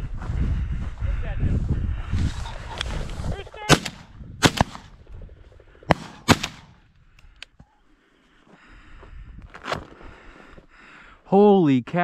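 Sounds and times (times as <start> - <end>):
shotgun shots: 3.7 - 5.0, 5.9 - 6.8.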